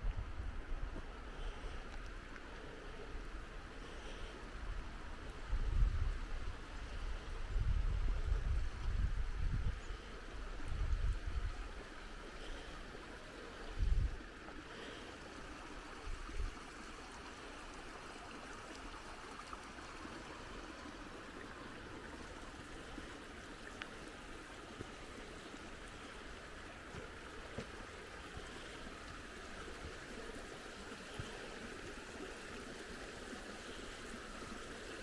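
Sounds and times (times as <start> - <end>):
creek water rushing: 0.0 - 35.0
wind buffeting microphone: 5.4 - 11.8, 13.7 - 14.2.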